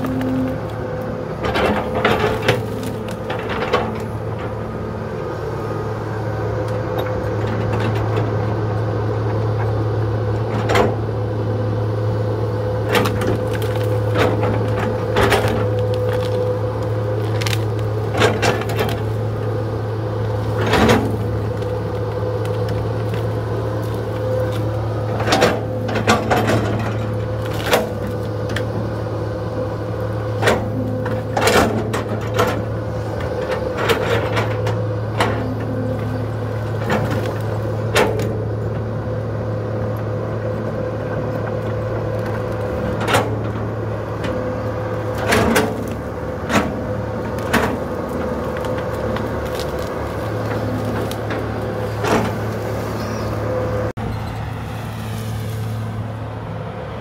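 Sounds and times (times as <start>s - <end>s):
excavator diesel engine whining: 0.0s - 57.0s
sharp knocks and cracks: 12.9s - 19.3s, 45.0s - 52.8s.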